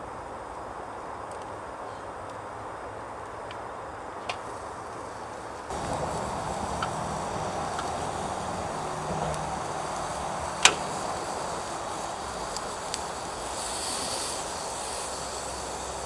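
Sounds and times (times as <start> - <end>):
gas burner hiss: 4.2 - 16.0
burgers sizzling in a pan: 4.5 - 16.0.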